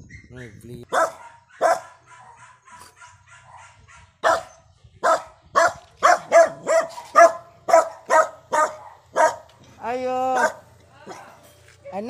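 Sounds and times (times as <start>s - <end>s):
dog barking: 0.9s - 9.5s, 10.4s - 10.7s.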